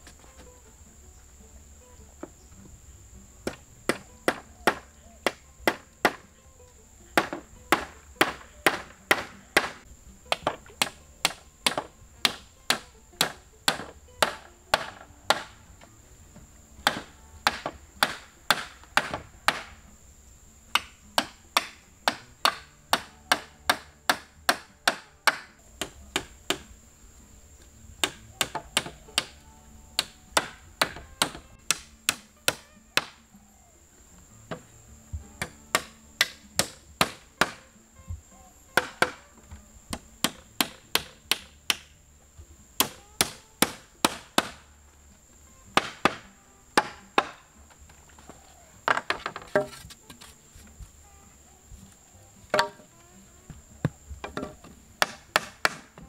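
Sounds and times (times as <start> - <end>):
wood being chopped: 3.4 - 6.3, 7.1 - 15.9, 16.8 - 19.9, 20.7 - 26.7, 28.0 - 33.2, 34.5 - 37.8, 38.7 - 41.9, 42.8 - 44.7, 45.7 - 50.3, 52.5 - 52.8, 53.8 - 56.0.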